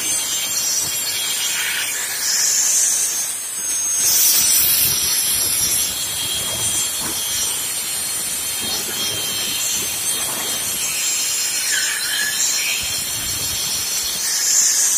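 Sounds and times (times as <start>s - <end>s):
angle grinder whine: 0.0s - 14.9s
saw disc rasping through branch: 4.0s - 14.8s.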